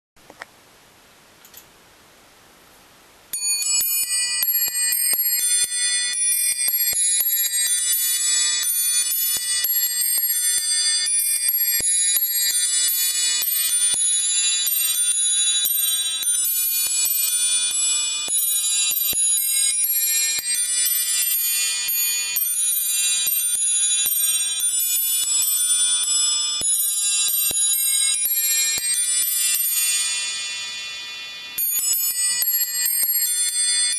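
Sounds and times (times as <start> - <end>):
musical clock bells melody: 3.3 - 33.9.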